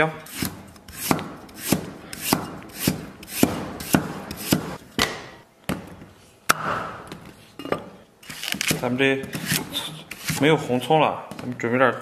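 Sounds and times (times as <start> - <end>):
cleaver chopping on wooden block: 0.4 - 5.2.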